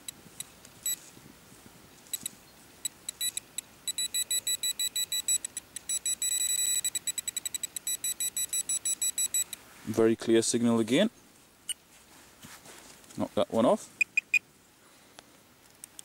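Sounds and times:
metal detector pinpointer beeping: 0.0 - 1.0, 2.1 - 9.6, 14.0 - 14.4.

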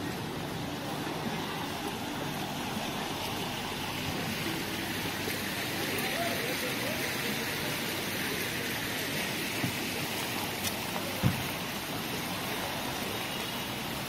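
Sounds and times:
steady rain hissing: 0.0 - 14.0.

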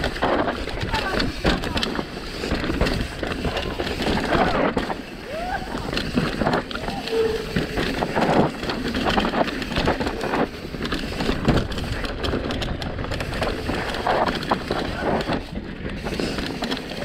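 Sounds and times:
bike rattling over rough ground: 0.0 - 17.0
bike tyres on dirt and rocks: 0.0 - 17.0.

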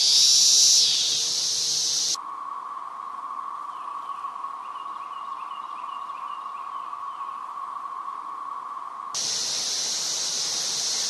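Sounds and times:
high-pitched cicada buzz: 0.0 - 2.6, 9.2 - 11.0
cicada chorus drone: 0.0 - 11.0.

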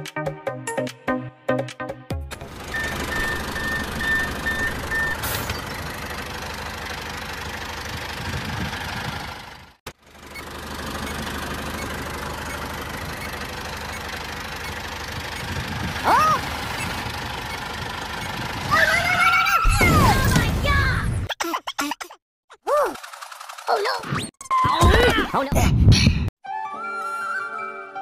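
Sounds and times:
tractor engine running: 2.3 - 19.4, 23.0 - 23.7
sliding whistle-like tone: 2.7 - 5.6.

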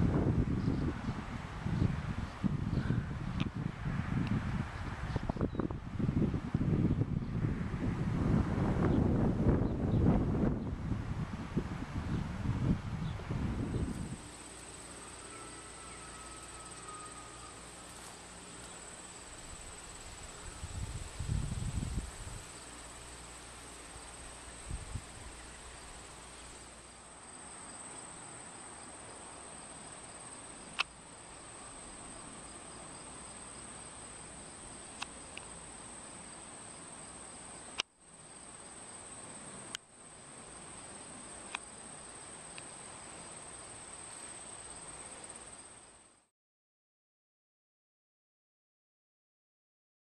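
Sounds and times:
crickets and insects chirring: 12.0 - 46.3.

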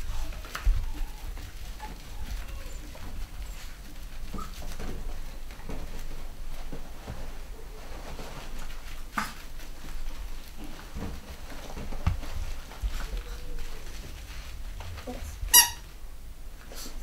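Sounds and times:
puppies padding on grass: 0.0 - 17.0
puppy squeak: 15.5 - 15.9.

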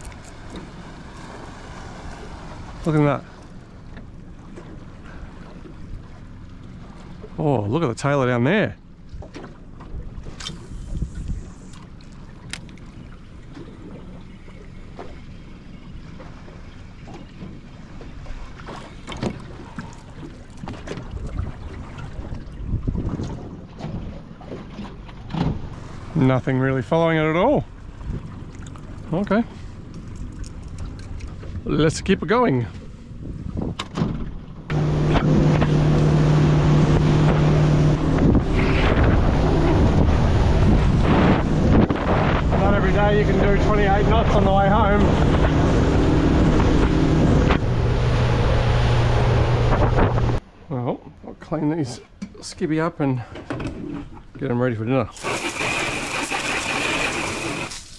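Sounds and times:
motorboat engine drone: 0.0 - 50.6, 55.2 - 57.9
water lapping against boat hull: 0.0 - 57.9
wind on microphone: 10.5 - 11.7, 21.0 - 24.2, 33.0 - 50.4.

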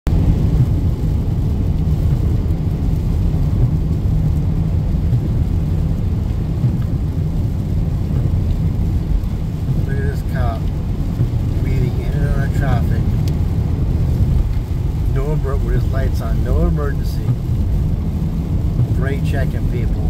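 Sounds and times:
car road noise on wet highway: 0.1 - 20.0.

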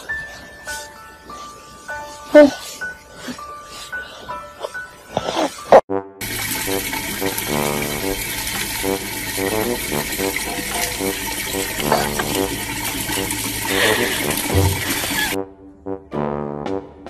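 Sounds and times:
water running from tap: 6.2 - 15.4.

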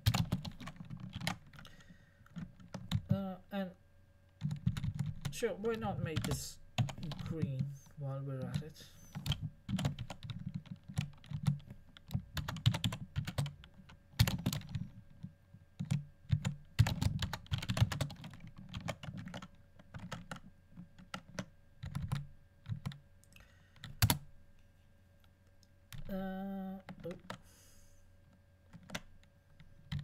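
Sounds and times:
typing on computer keyboard: 0.0 - 3.2, 4.4 - 7.6, 8.4 - 23.0, 23.8 - 24.2, 26.8 - 27.4, 28.7 - 30.0.

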